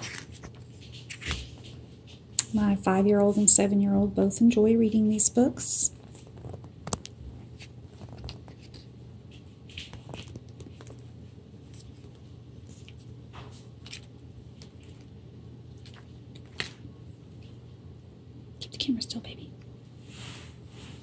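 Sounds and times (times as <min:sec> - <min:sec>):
book pages turning: 0:00.0 - 0:01.8, 0:06.0 - 0:15.1
steady low hum: 0:00.0 - 0:21.0.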